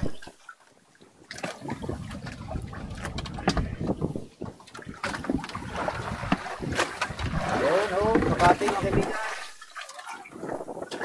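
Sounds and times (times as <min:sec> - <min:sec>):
water noise: 0:00.0 - 0:11.0
knocks and clatter on boat: 0:01.3 - 0:09.3
wind on microphone: 0:01.6 - 0:11.0.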